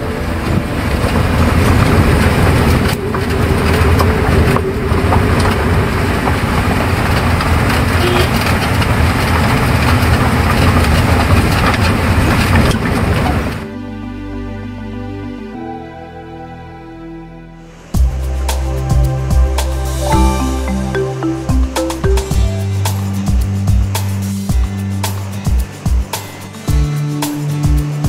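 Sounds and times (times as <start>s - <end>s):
vehicle engine and road noise: 0.0s - 13.6s.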